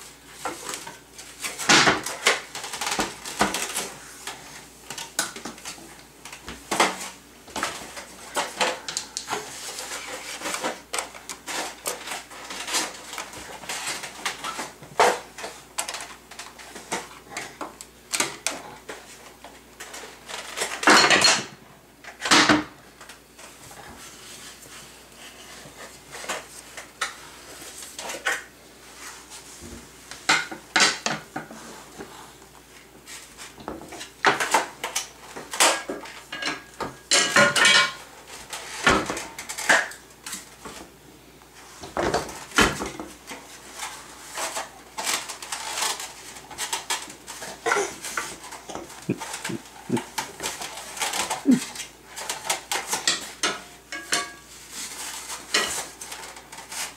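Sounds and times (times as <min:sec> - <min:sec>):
plastic items rattling: 0:00.4 - 0:19.2, 0:41.8 - 0:53.5
kitchen utensils clattering: 0:19.8 - 0:22.7, 0:33.8 - 0:40.0, 0:41.9 - 0:56.9.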